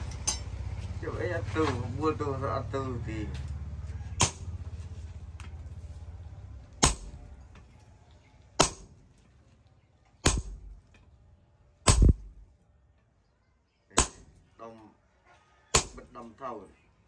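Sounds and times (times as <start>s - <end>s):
sledgehammer striking metal: 0.1s - 0.6s, 4.2s - 4.6s, 6.8s - 7.2s, 8.6s - 9.0s, 10.2s - 10.9s, 11.8s - 12.4s, 14.0s - 14.4s, 15.8s - 16.1s.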